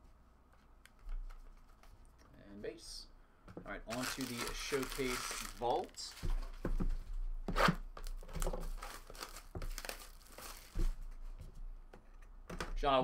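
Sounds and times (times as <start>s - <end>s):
plastic shrink-wrap tearing: 3.9s - 6.1s, 8.6s - 10.8s.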